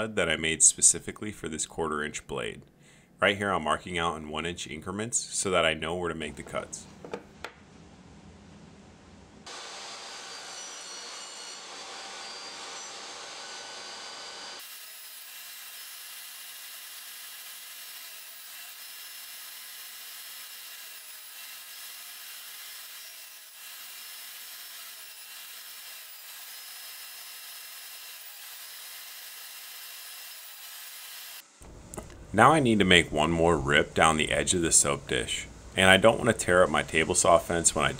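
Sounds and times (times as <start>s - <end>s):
table saw cutting wood: 9.5s - 31.5s.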